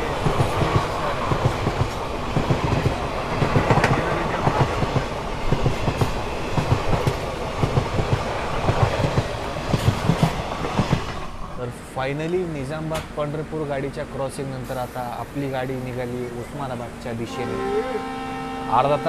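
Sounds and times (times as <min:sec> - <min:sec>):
train wheels clattering over rail joints: 0:00.2 - 0:11.3.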